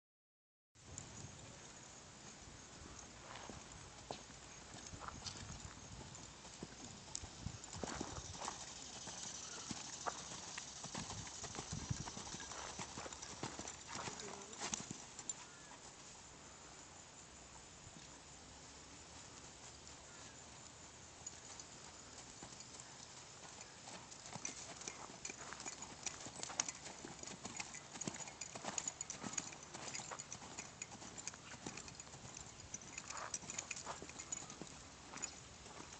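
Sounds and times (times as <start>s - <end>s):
horse hoofbeats on dirt: 2.9s - 16.0s, 21.2s - 35.9s.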